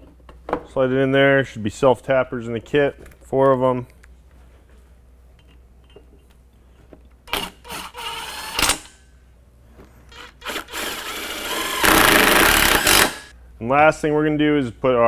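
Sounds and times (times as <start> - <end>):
impact driver driving screws: 10.1 - 13.3.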